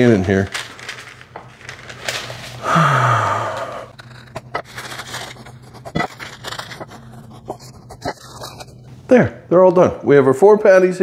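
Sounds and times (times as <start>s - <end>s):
parchment paper crinkling: 0.0s - 2.6s, 3.9s - 8.9s
breathy sigh: 2.6s - 3.9s.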